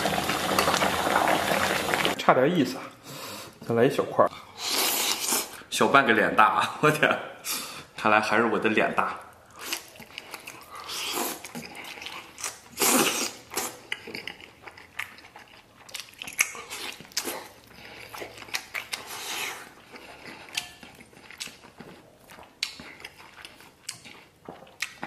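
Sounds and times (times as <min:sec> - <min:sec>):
man chewing food: 0:09.3 - 0:25.0.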